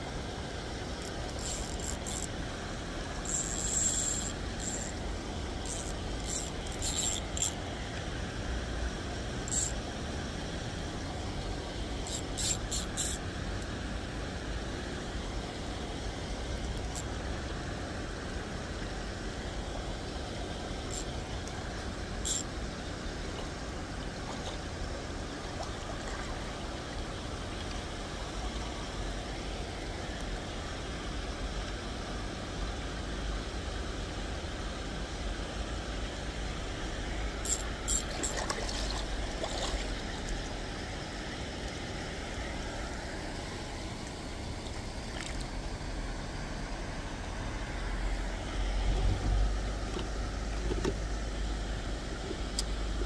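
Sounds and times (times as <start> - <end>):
river water rushing: 36.8 - 41.5.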